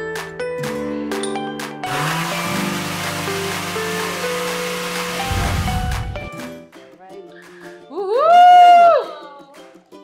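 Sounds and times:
background music: 0:00.0 - 0:10.0
high whoo cry: 0:08.0 - 0:09.2.

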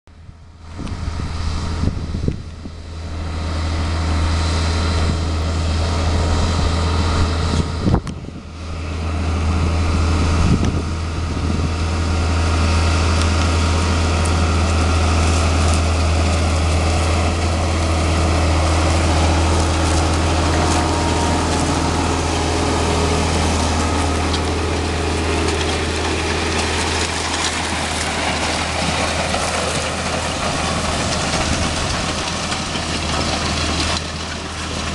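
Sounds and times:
diesel tractor engine droning: 0:00.1 - 0:34.9.

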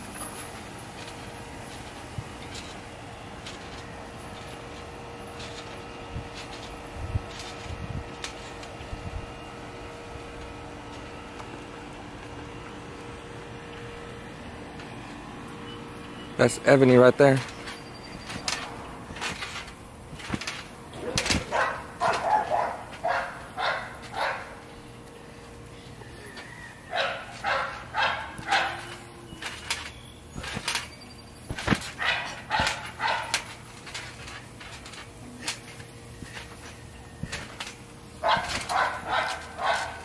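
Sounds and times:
dog barking: 0:21.5 - 0:24.5, 0:26.9 - 0:28.8, 0:32.0 - 0:33.3, 0:38.2 - 0:40.0.

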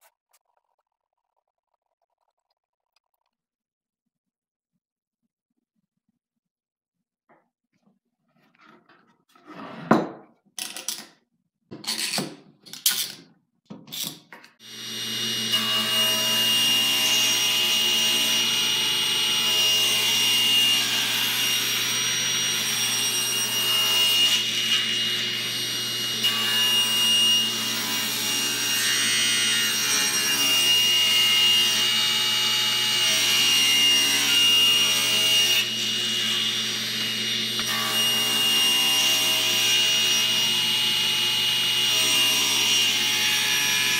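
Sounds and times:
table saw cutting: 0:14.6 - 0:43.9.

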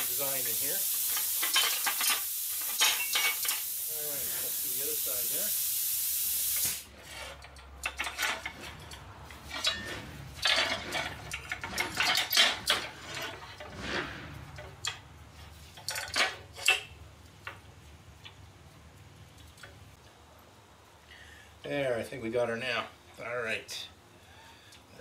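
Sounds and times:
plasma cutter hissing: 0:00.0 - 0:06.9
metal clanking on steel table: 0:01.4 - 0:03.6, 0:07.1 - 0:15.0.

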